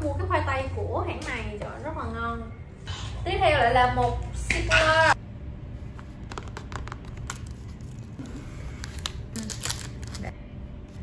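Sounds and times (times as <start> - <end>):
plastic wrapper crinkling: 8.8 - 10.4.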